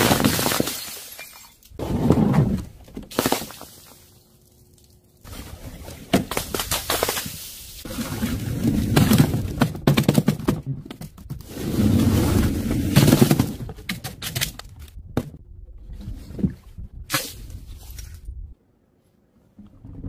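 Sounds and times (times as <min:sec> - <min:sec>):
plastic bottles clattering and crushing: 0:00.0 - 0:04.0, 0:06.0 - 0:15.4.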